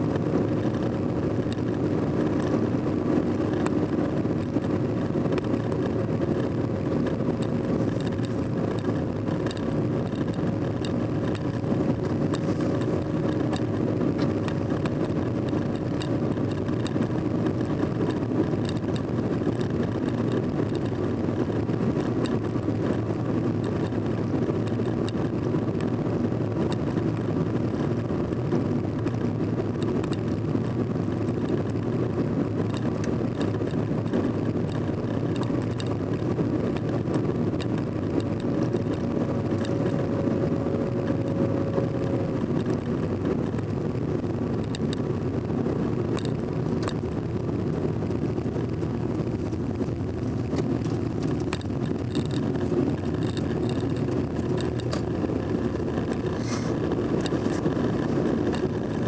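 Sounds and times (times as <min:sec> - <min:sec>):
car engine hum and tyre noise: 0:00.0 - 0:59.0
faint ticks: 0:46.1 - 0:47.0.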